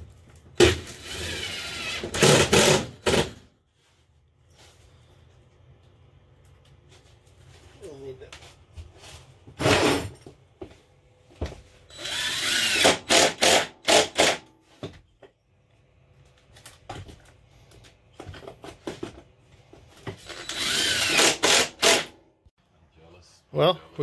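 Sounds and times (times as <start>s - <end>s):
impact driver driving screws: 12.0s - 14.4s, 20.2s - 22.2s.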